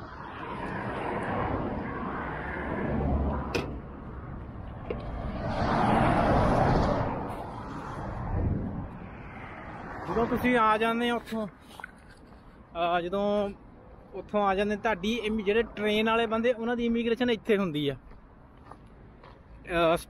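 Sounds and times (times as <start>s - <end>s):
wind on microphone: 0.0s - 10.0s.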